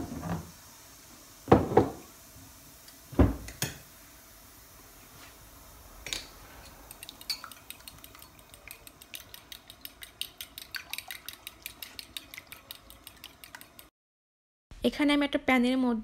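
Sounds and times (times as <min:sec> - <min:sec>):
fork clinking against glass bowl: 0:07.0 - 0:13.8.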